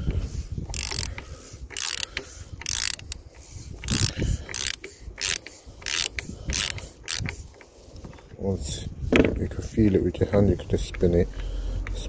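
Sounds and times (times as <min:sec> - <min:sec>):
hand ratchet clicking: 0:00.7 - 0:07.7.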